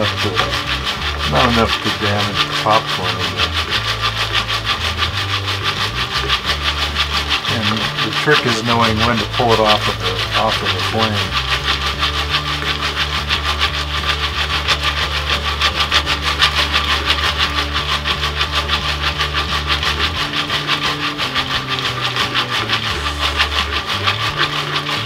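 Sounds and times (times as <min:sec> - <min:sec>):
pan scraping on metal grate: 0:00.0 - 0:25.0.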